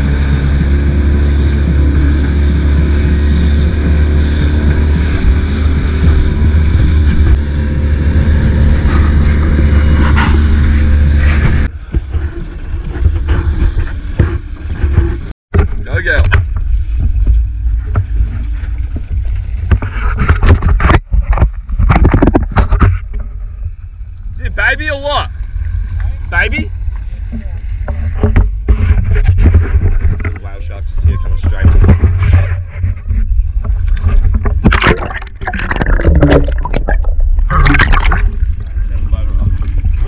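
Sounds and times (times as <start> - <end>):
water splashes and knocks: 0.0 - 23.8, 26.9 - 30.5, 31.3 - 40.0
wind buffeting microphone: 0.0 - 24.3
steady low rumble: 0.0 - 40.0.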